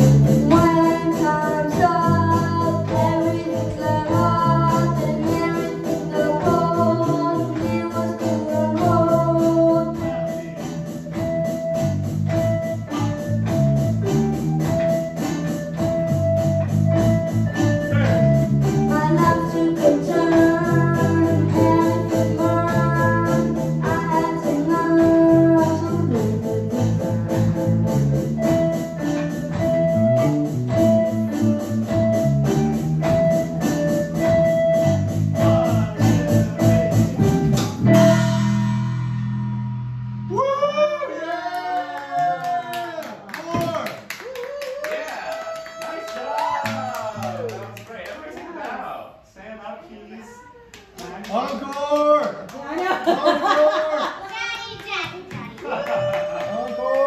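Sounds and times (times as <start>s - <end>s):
electronic keyboards: 0.0s - 40.1s
drum kit: 0.0s - 40.7s
electric bass guitar: 0.0s - 40.9s
boy singing into a microphone: 0.3s - 10.7s, 18.9s - 26.9s.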